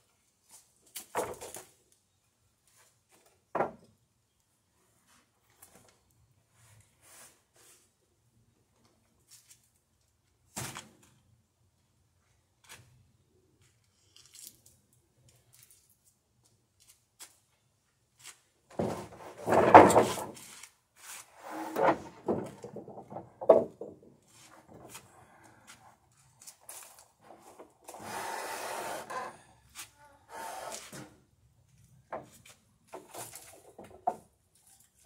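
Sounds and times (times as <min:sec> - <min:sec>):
wooden boards scraping and knocking: 0:18.7 - 0:20.6, 0:21.3 - 0:25.1, 0:32.1 - 0:34.2.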